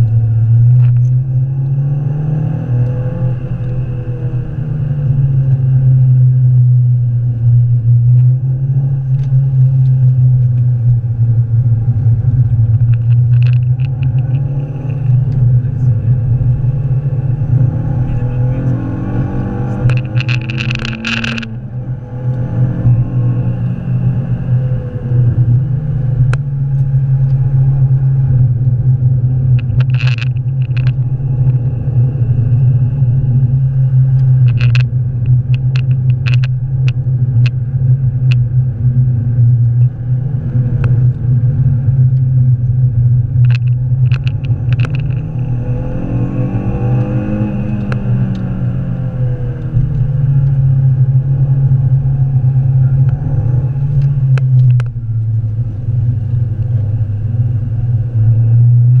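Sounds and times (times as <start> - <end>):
car engine drone from cabin: 0.0 - 59.0
road rumble: 0.0 - 59.0
sharp clicks and rattles: 11.9 - 18.6, 19.6 - 21.8, 28.6 - 38.5, 40.8 - 45.7, 52.4 - 57.0.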